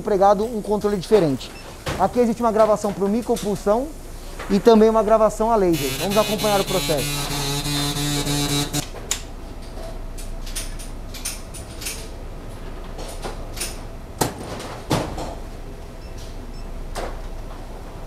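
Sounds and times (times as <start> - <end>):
machine buzz: 5.7 - 8.9.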